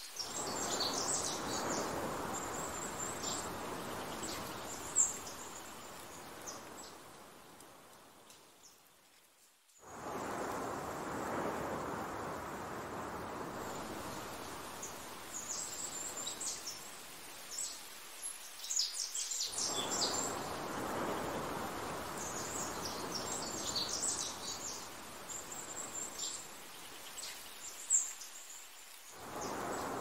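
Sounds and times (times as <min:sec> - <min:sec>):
small birds chirping: 0:00.0 - 0:08.9, 0:10.1 - 0:30.0
wind rushing: 0:00.3 - 0:07.2, 0:09.8 - 0:16.4, 0:19.6 - 0:26.0, 0:29.2 - 0:30.0.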